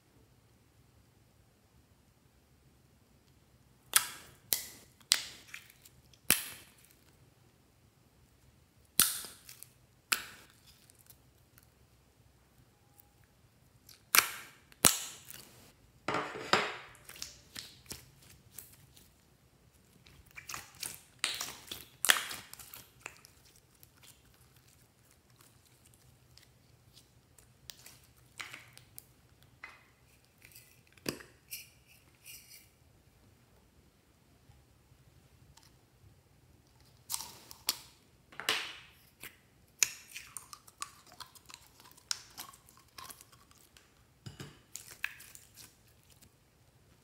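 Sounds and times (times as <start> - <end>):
slime popping and crackling: 8.9 - 11.5, 13.8 - 15.6, 16.9 - 19.1, 19.8 - 29.2, 39.7 - 43.9, 44.7 - 46.3.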